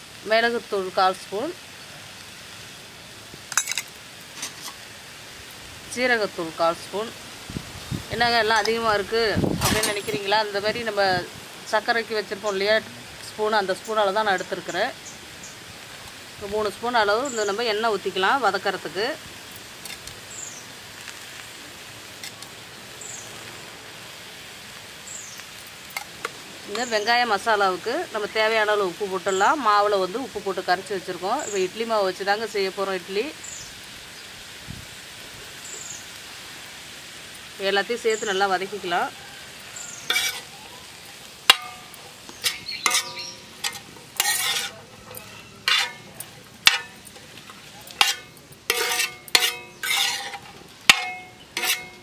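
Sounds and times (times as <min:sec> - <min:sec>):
steady outdoor hiss: 0:00.0 - 0:52.0
metal spatula scraping on griddle: 0:03.5 - 0:04.9, 0:09.6 - 0:10.3, 0:39.8 - 0:52.0
high falling bird chirp: 0:20.2 - 0:20.7, 0:39.7 - 0:41.0, 0:41.8 - 0:43.6, 0:49.6 - 0:50.0.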